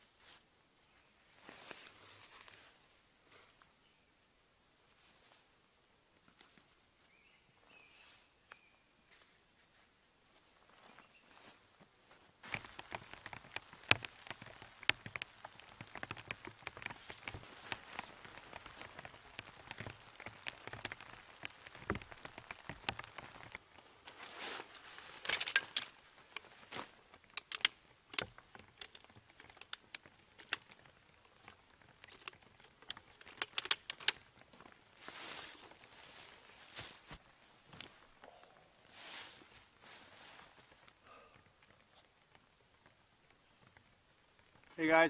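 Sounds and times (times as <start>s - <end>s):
light rain pattering: 8.4s - 45.0s
chair frame clicks and rustles: 12.4s - 23.6s, 25.0s - 34.8s.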